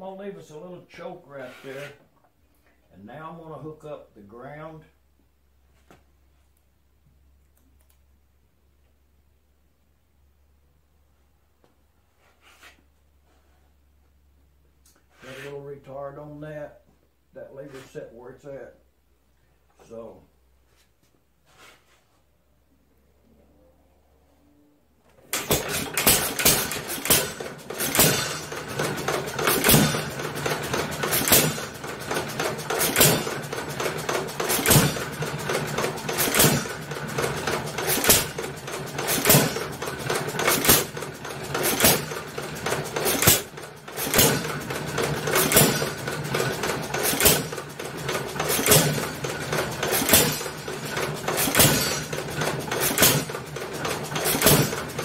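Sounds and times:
engine firing with sharp bangs: 25.2s - 55.0s
mechanical engine running noise: 25.2s - 55.0s.

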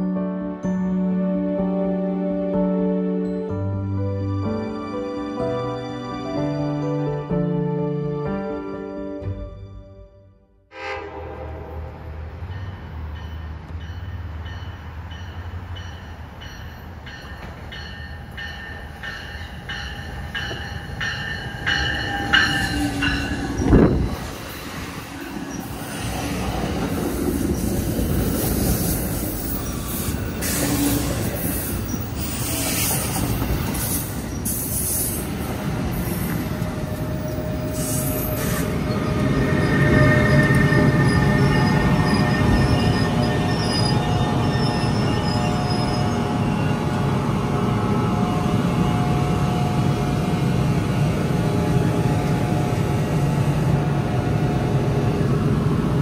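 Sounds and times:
train passing: 10.7s - 56.0s
rumble and clatter of train cars: 11.0s - 56.0s
regular ringing bell: 12.6s - 23.5s.

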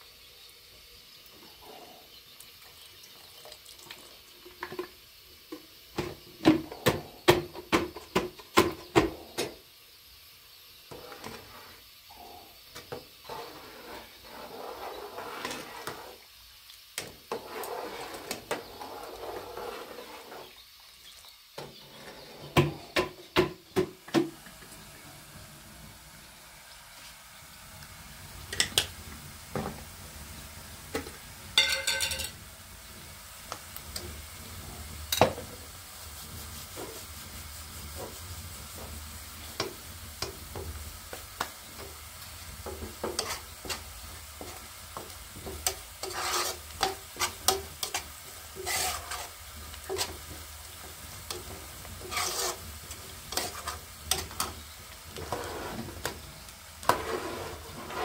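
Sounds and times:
onions sizzling in a skillet: 0.0s - 58.0s
metal spoon scraping a pan: 13.2s - 16.2s, 17.3s - 20.6s, 42.6s - 56.2s, 56.8s - 58.0s.

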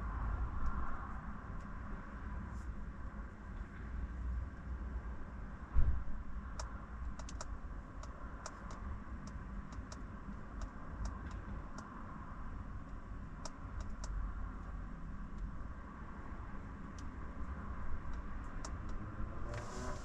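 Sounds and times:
low steady rumble: 0.0s - 20.0s
light sharp clicks: 6.5s - 12.0s, 12.8s - 15.5s, 18.0s - 19.7s.

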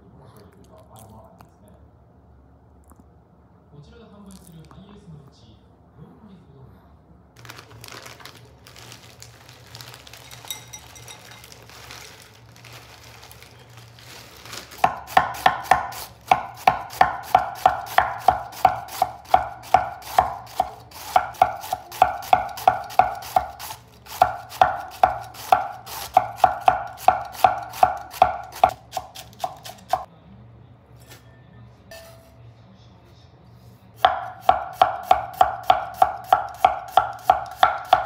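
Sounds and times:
handling sounds: 7.4s - 15.2s
knife chopping on wooden board: 14.8s - 30.1s, 34.0s - 38.0s.

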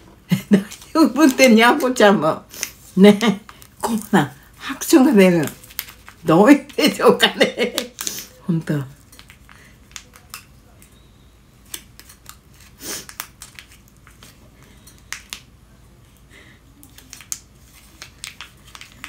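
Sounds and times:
plastic bag crinkling: 2.6s - 10.8s, 11.8s - 15.4s.

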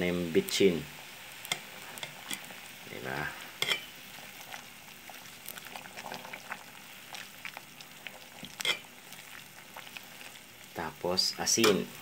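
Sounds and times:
soup boiling in a pot: 0.0s - 12.0s
metal spoon clinking in a pot: 3.6s - 3.9s, 8.6s - 8.9s.

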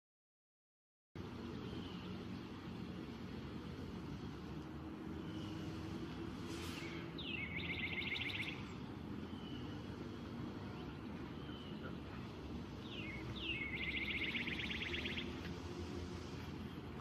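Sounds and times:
songbird singing trill: 6.7s - 15.6s.

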